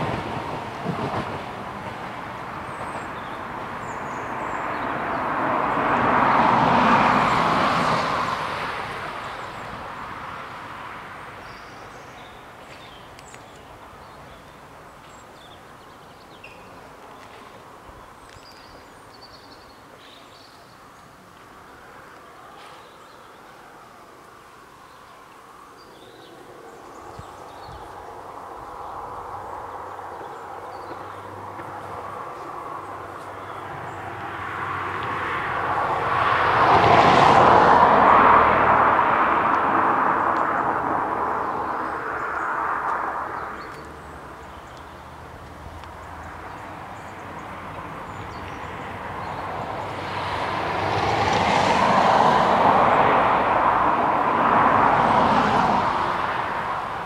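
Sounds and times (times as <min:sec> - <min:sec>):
train rumbling past: 0:00.0 - 0:11.9
bird chirps: 0:11.4 - 0:16.8.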